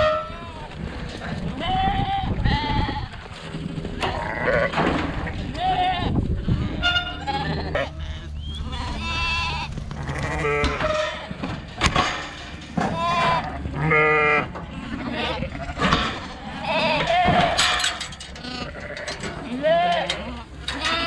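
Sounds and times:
sheep bleating: 0:04.0 - 0:11.4, 0:12.9 - 0:17.7, 0:18.4 - 0:21.0.

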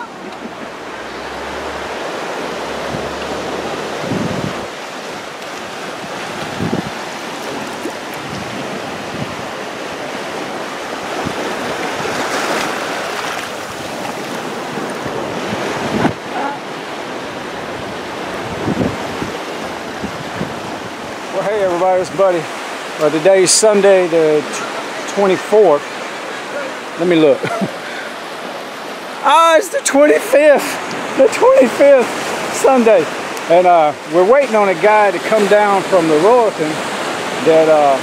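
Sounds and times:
wind buffeting microphone: 0:00.0 - 0:22.9
sea waves washing onto beach: 0:00.0 - 0:38.0.

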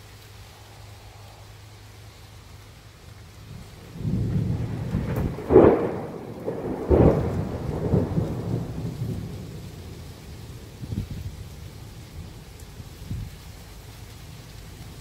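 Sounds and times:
steady rain: 0:00.0 - 0:15.0
thunder rumbling: 0:03.3 - 0:13.4.

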